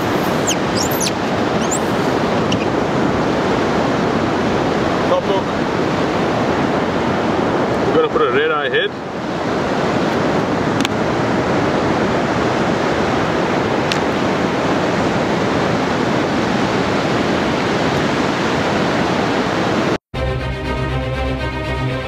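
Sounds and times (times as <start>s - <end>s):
waves breaking on beach: 0.0s - 20.0s.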